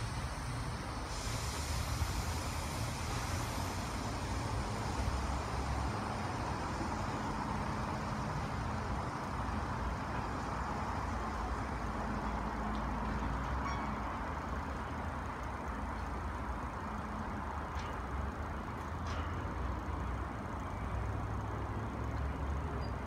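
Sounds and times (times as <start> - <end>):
air brake hiss: 0.0 - 8.2
train low rumble: 0.0 - 23.0.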